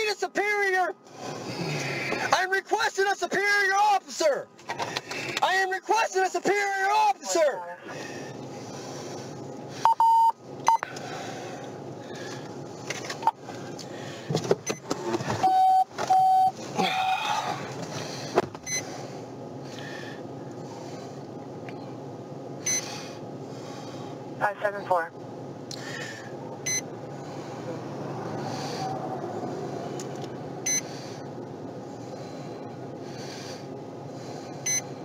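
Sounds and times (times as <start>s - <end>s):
steady background hum: 0.0s - 35.0s
electronic beeps: 9.9s - 10.8s, 15.4s - 16.5s.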